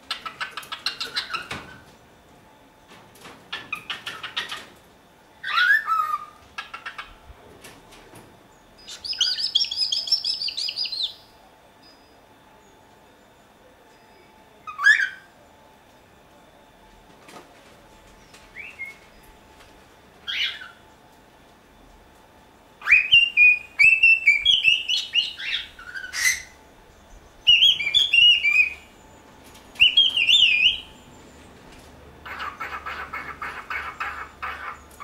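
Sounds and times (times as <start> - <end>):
bird chattering: 0.0 - 1.8, 5.4 - 7.2, 8.8 - 11.3, 27.2 - 29.0, 29.8 - 31.1, 32.2 - 35.0
cockatiel whistling: 5.4 - 6.4, 8.9 - 11.2, 14.7 - 15.3, 22.8 - 26.6, 27.4 - 28.9, 29.8 - 30.9.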